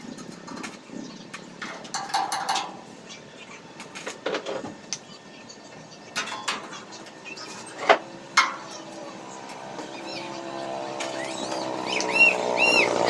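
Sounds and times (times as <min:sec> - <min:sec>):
birds chirping: 0:00.0 - 0:13.0
vehicle engine approaching: 0:08.1 - 0:13.0.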